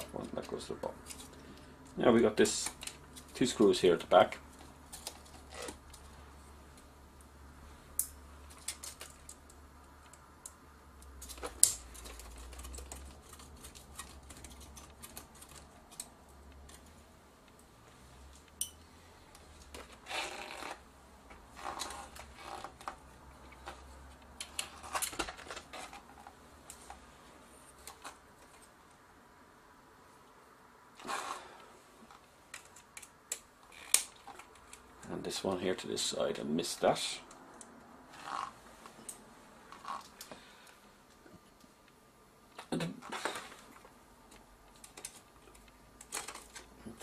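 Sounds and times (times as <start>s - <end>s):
metal parts clicking and rattling: 8.0s - 16.9s, 21.6s - 27.0s, 44.7s - 47.0s.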